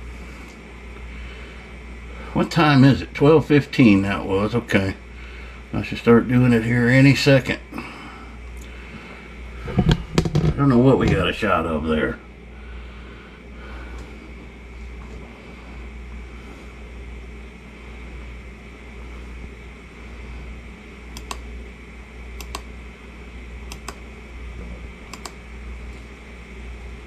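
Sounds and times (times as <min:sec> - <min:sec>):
low hum: 0:00.0 - 0:27.0
computer mouse double clicks: 0:22.4 - 0:22.7.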